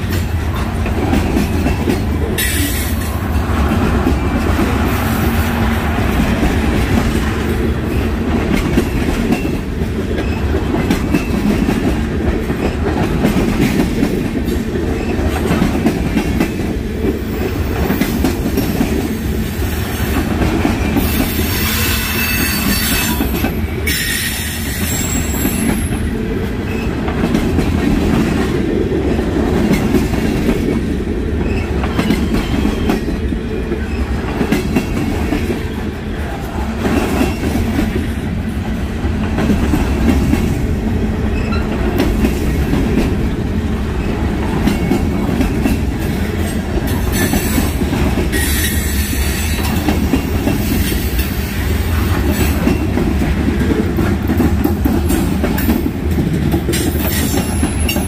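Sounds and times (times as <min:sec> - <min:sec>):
train wheels clacking over rail joints: 0:00.0 - 0:19.2, 0:41.4 - 0:58.0
high wheel squeal: 0:21.0 - 0:25.9.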